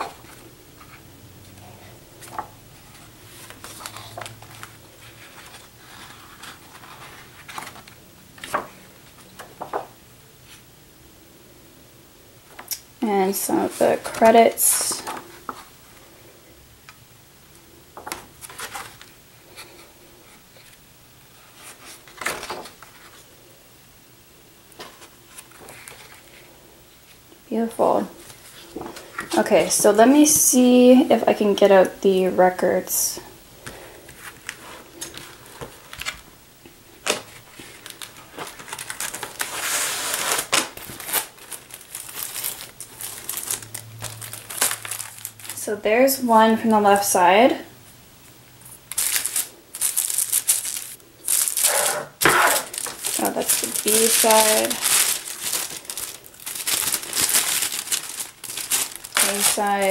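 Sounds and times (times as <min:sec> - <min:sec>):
plastic sleeve crinkling: 0:00.0 - 0:09.9, 0:18.0 - 0:19.9, 0:36.9 - 0:47.2, 0:48.6 - 0:59.9
laminated pages rustling: 0:00.0 - 0:10.7, 0:13.3 - 0:16.1, 0:18.0 - 0:23.3, 0:24.7 - 0:27.2, 0:28.0 - 0:31.0, 0:33.6 - 0:36.3, 0:36.9 - 0:45.7, 0:48.6 - 0:59.9
cardboard scraping: 0:37.1 - 0:45.3, 0:48.9 - 0:59.9.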